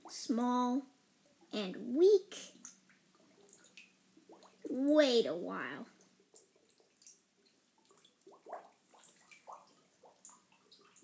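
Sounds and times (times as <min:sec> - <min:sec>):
small drips: 0:02.3 - 0:05.1, 0:05.7 - 0:11.0
underwater bubbling: 0:02.5 - 0:04.8, 0:05.8 - 0:11.0.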